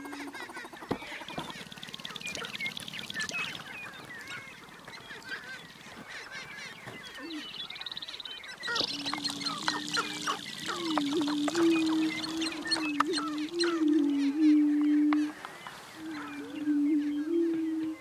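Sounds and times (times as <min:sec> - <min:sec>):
grouse clucking and chirping: 0:00.0 - 0:18.0
low long held tone: 0:08.6 - 0:18.0.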